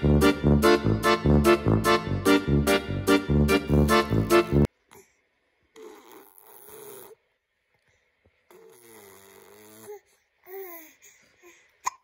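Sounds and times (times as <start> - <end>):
baby vocalizing: 5.7 - 7.2, 8.5 - 12.0.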